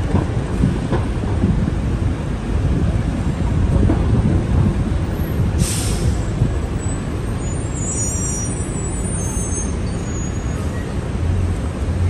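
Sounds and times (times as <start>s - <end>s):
street traffic rumbling: 0.0s - 12.0s
air hiss: 5.6s - 6.2s.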